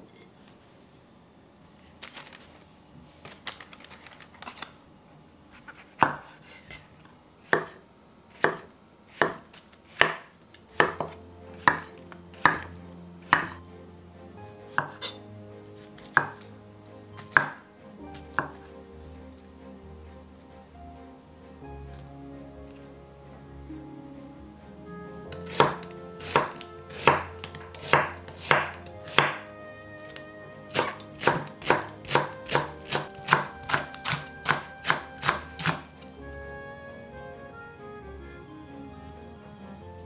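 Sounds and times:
knife knocking on cutting board: 0:10.8 - 0:11.9, 0:12.5 - 0:12.7.

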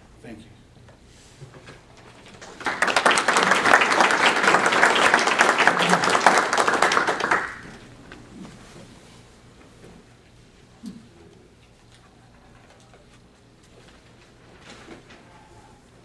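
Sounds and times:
audience applauding: 0:02.2 - 0:08.0.

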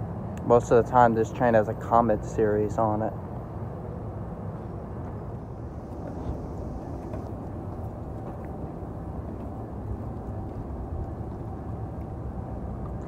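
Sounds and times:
faint train whine: 0:00.0 - 0:13.0
electric train rumbling: 0:03.2 - 0:13.0.

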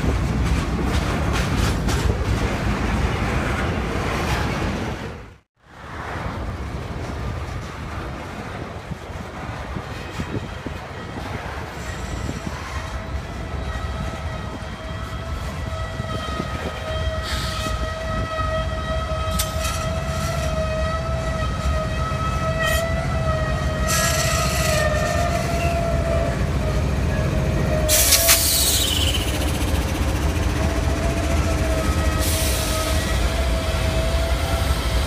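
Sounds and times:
freight train rolling past: 0:00.0 - 0:35.0
locomotive engine rumble: 0:12.1 - 0:35.0
steady wheel squeal: 0:27.8 - 0:30.3
air hisses: 0:27.9 - 0:29.6.

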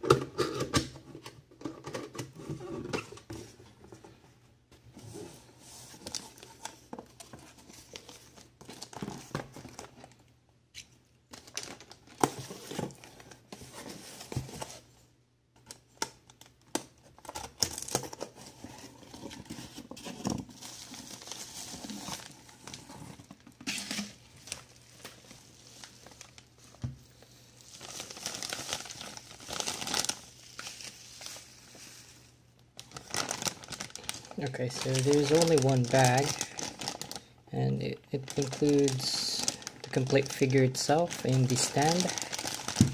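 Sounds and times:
plastic bag crinkling: 0:20.5 - 0:26.8, 0:27.5 - 0:42.9.

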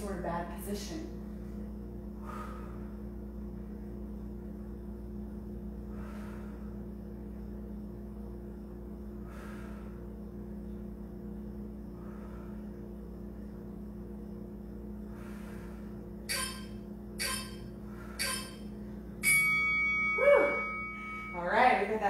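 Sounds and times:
timer short beeps: 0:16.3 - 0:21.4
timer long beep: 0:16.3 - 0:21.7.

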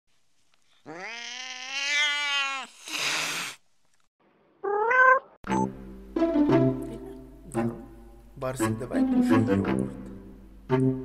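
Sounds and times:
cat meowing: 0:00.8 - 0:03.1, 0:04.6 - 0:05.4
cat hissing: 0:00.8 - 0:03.6
cat yowling: 0:00.9 - 0:03.5, 0:04.6 - 0:05.4.

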